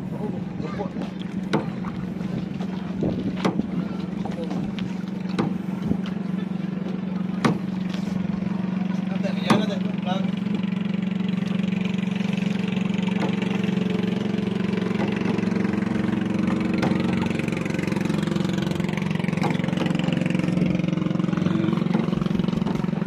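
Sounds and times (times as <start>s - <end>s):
motorboat engine humming: 0.0s - 23.0s.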